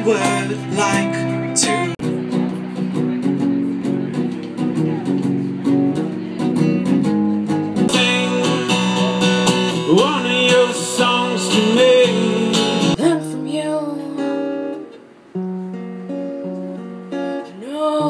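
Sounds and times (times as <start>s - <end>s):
man singing: 0.0s - 2.0s, 7.9s - 13.2s
acoustic guitar strumming: 0.0s - 18.0s.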